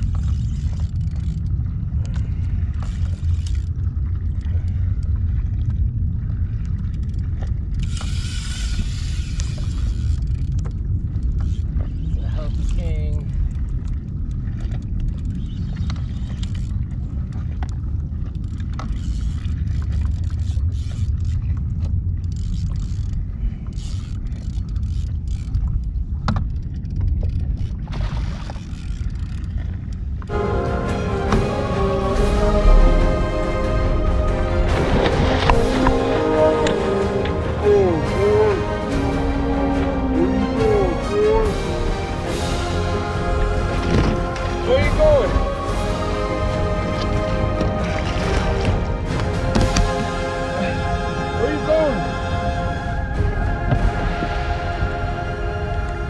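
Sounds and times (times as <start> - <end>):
choppy sea water: 0.0 - 56.0
wind rumble: 0.0 - 56.0
water slapping against kayak hull: 26.2 - 30.3, 34.5 - 37.4, 43.3 - 50.4, 53.6 - 54.9.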